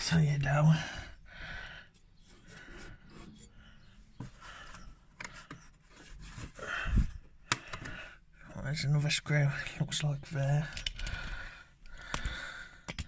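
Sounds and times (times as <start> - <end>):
heavy breathing: 0.7 - 5.6, 6.3 - 8.4, 10.6 - 13.0
sharp clicks: 10.7 - 13.0.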